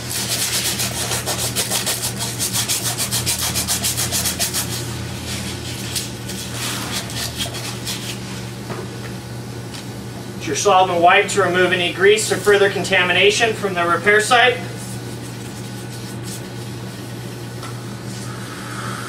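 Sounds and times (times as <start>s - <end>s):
emery cloth scratching metal pipe: 0.1s - 4.8s.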